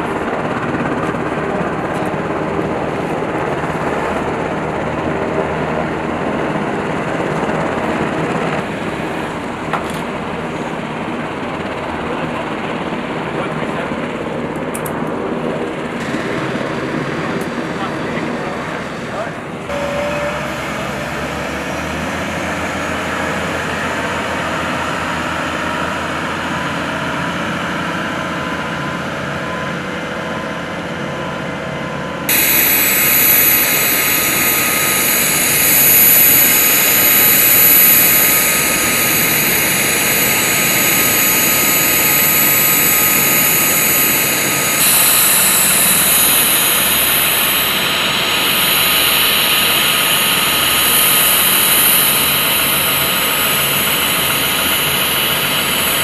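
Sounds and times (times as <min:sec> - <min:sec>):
helicopter turbine whine: 0:00.0 - 0:56.0
forklift engine running: 0:32.3 - 0:56.0.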